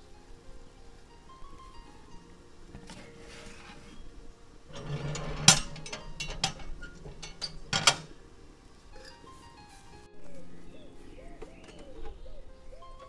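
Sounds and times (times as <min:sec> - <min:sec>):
metal pan scraping into oven: 0:02.8 - 0:08.2
metal oven door clanking shut: 0:04.7 - 0:08.2.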